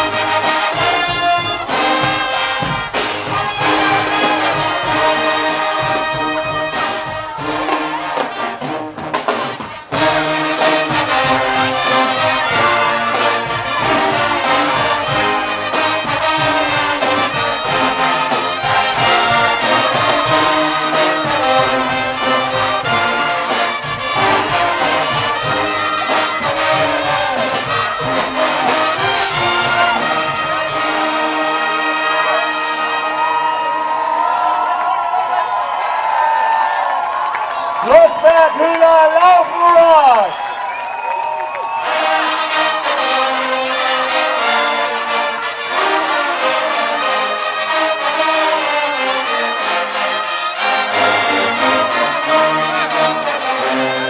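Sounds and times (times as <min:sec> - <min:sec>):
drum kit and cymbals: 0:00.0 - 0:31.4
loud brass: 0:00.0 - 0:54.0.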